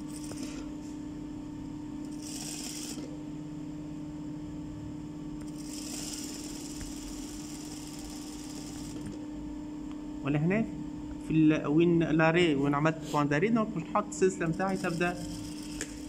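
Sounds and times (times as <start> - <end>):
sewing machine humming: 0.0 - 0.7, 2.0 - 3.2, 5.4 - 9.2, 14.4 - 16.0.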